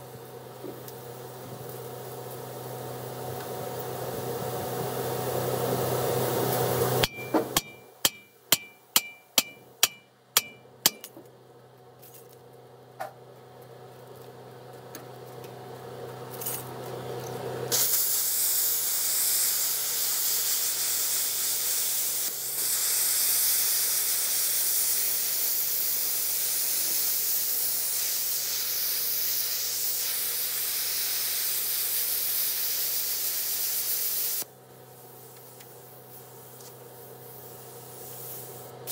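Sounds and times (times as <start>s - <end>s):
sharp metallic strikes: 7.0s - 11.1s
arc welder hissing: 17.7s - 38.9s.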